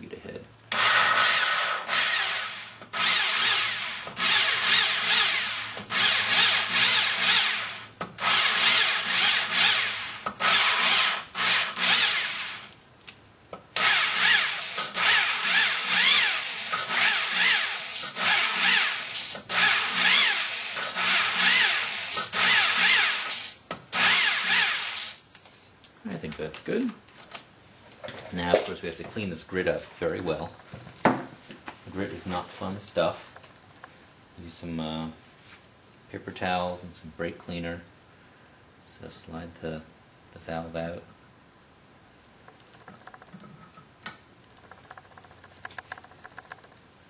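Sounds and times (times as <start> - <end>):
cordless drill motor whine: 0.7 - 12.7, 13.8 - 25.2.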